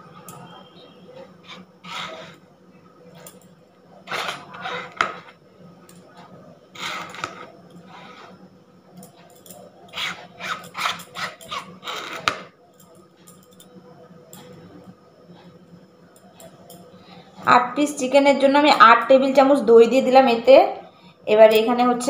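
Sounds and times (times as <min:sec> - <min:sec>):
metal spoon scraping yogurt: 0:00.1 - 0:02.4, 0:04.0 - 0:05.4, 0:09.9 - 0:12.4.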